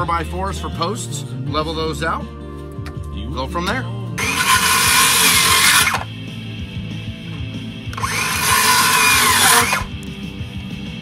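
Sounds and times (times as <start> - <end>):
background music: 0.0 - 11.0
circular saw cutting wood: 4.2 - 6.1, 8.0 - 9.9.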